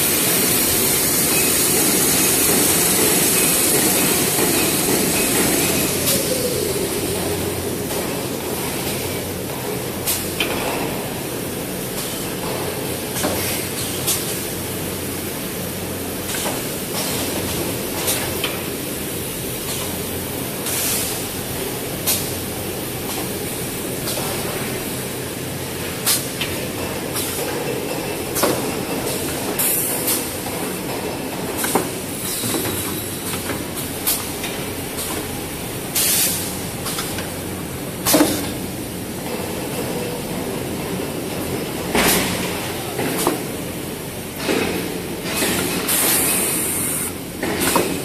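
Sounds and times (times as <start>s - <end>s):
machine noise: 0.0s - 9.8s.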